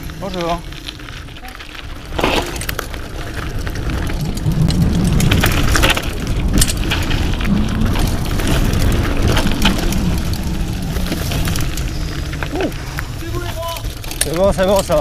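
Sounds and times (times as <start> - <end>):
bike rattling with sharp knocks: 0.0 - 15.0
tyres crackling over gravel: 0.0 - 15.0
wind rumble on microphone: 0.0 - 15.0.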